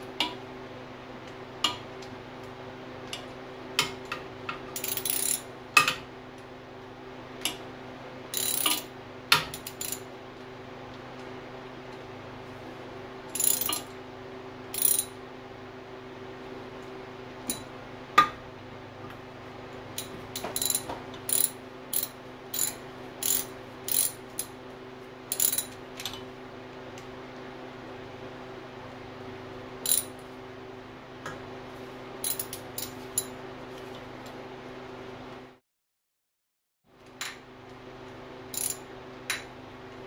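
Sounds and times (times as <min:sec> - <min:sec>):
hand ratchet clicking: 0:04.8 - 0:05.4, 0:08.4 - 0:08.9, 0:13.4 - 0:13.8, 0:14.8 - 0:15.1, 0:20.0 - 0:24.5, 0:25.3 - 0:25.8, 0:29.9 - 0:30.1, 0:32.2 - 0:33.3, 0:38.5 - 0:38.8.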